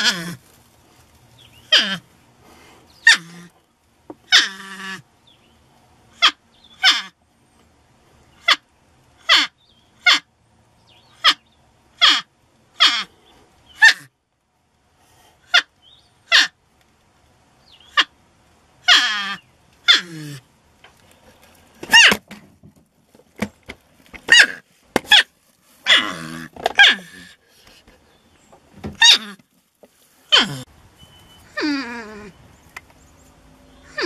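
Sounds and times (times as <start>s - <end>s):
porcupine high cries: 0.0s - 0.4s, 1.6s - 2.1s, 3.0s - 3.6s, 4.3s - 5.1s, 6.2s - 7.2s, 8.4s - 10.3s, 11.2s - 11.4s, 12.0s - 13.2s, 13.8s - 14.1s, 15.4s - 16.6s, 17.8s - 18.2s, 18.8s - 20.5s, 21.8s - 22.2s, 24.3s - 27.5s, 28.9s - 29.5s, 30.3s - 30.7s, 31.4s - 32.4s, 33.8s - 34.0s.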